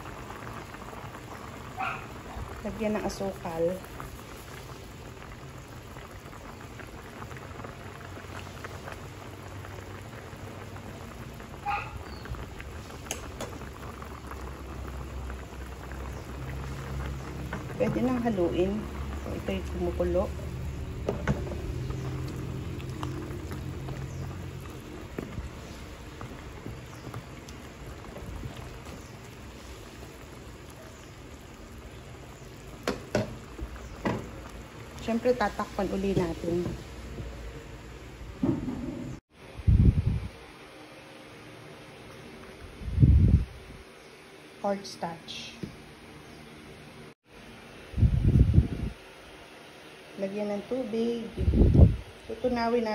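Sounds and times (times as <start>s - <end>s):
stew bubbling in a pot: 0.0s - 39.5s.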